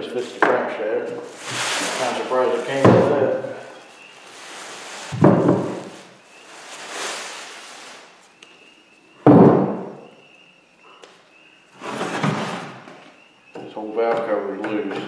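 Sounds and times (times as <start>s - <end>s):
plastic packaging rustling: 1.2s - 8.4s.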